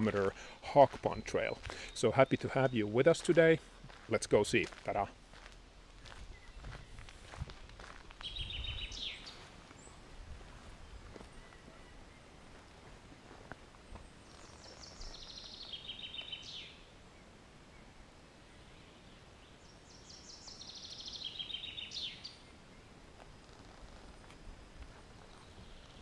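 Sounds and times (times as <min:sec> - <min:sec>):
songbird trilling: 0:08.2 - 0:10.0, 0:14.3 - 0:16.8, 0:20.0 - 0:22.4.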